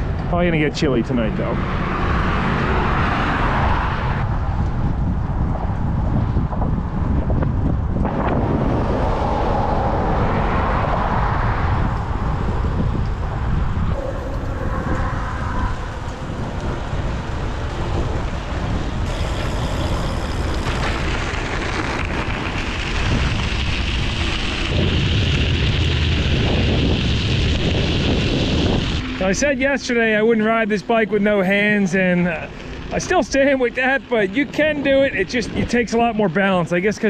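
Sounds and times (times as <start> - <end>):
wind buffeting microphone: 0.0 - 37.0
bicycle tyres rolling: 1.5 - 37.0
tyres on gravel: 19.0 - 30.6, 31.2 - 37.0.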